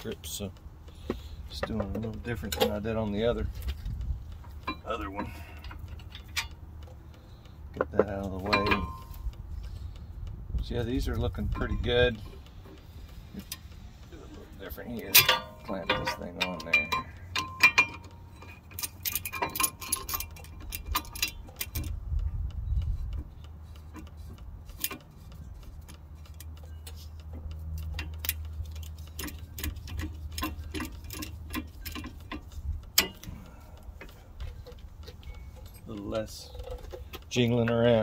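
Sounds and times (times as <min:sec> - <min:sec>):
low steady hum: 0:00.0 - 0:38.0
metallic clicks and clinks: 0:07.9 - 0:09.8, 0:11.0 - 0:22.2, 0:22.8 - 0:38.0.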